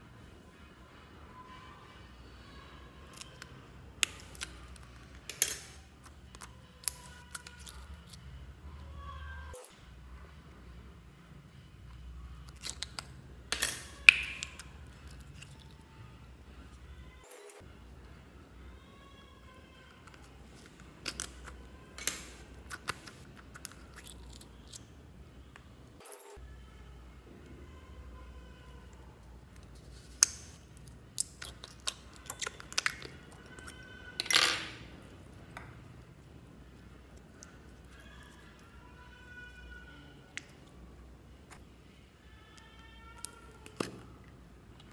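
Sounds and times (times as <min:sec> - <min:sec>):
slime squelching: 0:03.0 - 0:08.4, 0:12.4 - 0:15.9, 0:29.2 - 0:34.3
plastic tube clicking: 0:12.5 - 0:14.7.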